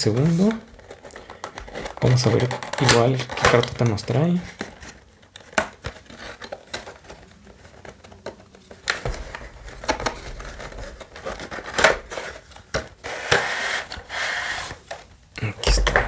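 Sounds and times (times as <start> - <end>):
cardboard rubbing and scraping: 0.0 - 1.0, 9.0 - 14.9.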